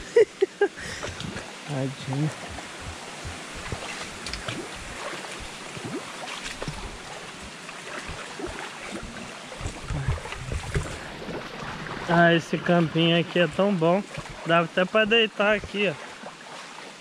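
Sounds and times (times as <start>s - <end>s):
running water: 0.0s - 17.0s
feet splashing in stream: 0.8s - 17.0s
wind rumble on microphone: 1.0s - 12.1s.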